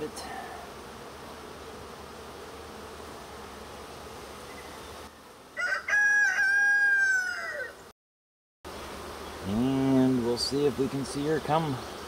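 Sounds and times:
honeybees humming: 0:00.0 - 0:07.9, 0:08.7 - 0:12.0
rooster crowing: 0:05.6 - 0:07.8.

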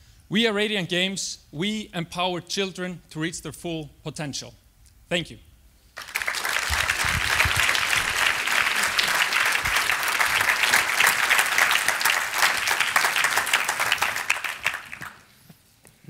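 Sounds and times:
audience applauding: 0:06.0 - 0:15.3.

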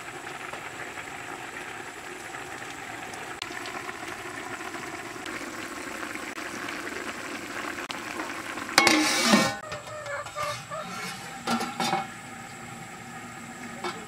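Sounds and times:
pot bubbling at a boil: 0:00.0 - 0:14.0
metal lid clanging on pot: 0:08.8 - 0:12.1.

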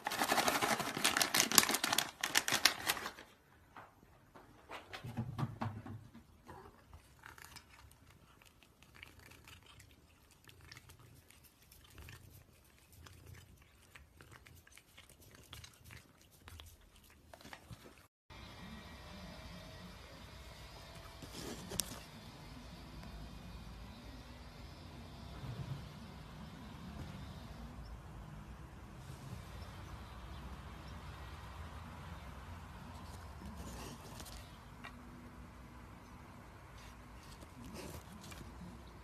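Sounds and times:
cat crunching a dry treat: 0:00.0 - 0:03.3, 0:06.6 - 0:18.1, 0:21.0 - 0:22.1, 0:36.8 - 0:39.0.

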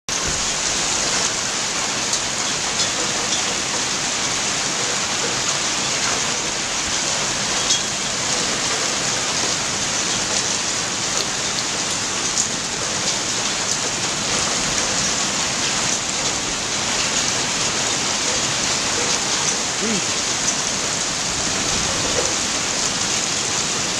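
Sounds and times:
hail pelting down: 0:00.1 - 0:23.9
hailstones clicking on hard surfaces: 0:00.1 - 0:23.9.

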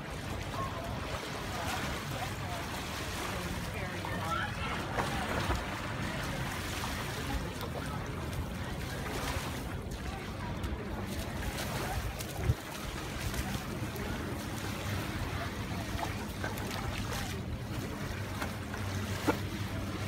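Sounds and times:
small waves on sandy shore: 0:00.0 - 0:20.0
wind rumbling on microphone: 0:04.4 - 0:18.1.

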